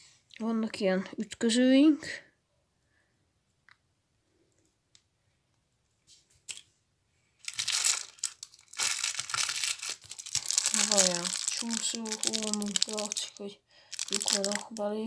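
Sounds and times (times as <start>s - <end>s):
plastic rustling and crinkling: 7.4s - 15.0s.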